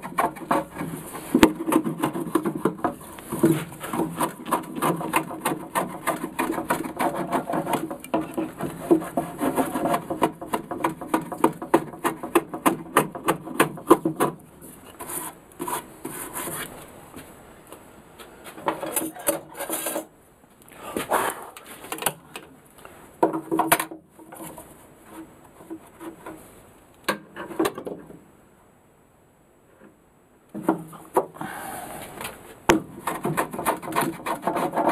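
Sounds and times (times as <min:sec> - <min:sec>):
wood knocks: 0:00.0 - 0:14.4
hand plane scraping wood: 0:00.0 - 0:16.8, 0:32.8 - 0:34.9.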